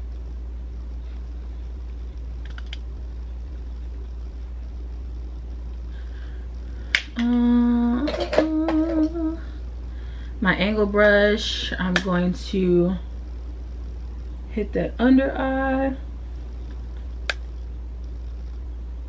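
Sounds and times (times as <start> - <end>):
low hum: 0.0 - 19.0
woman humming: 7.1 - 9.6.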